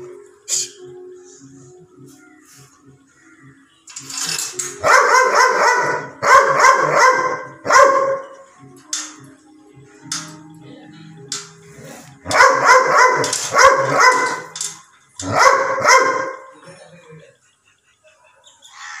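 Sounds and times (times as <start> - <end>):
dog barking: 4.8 - 8.3, 12.2 - 14.6, 15.2 - 16.6.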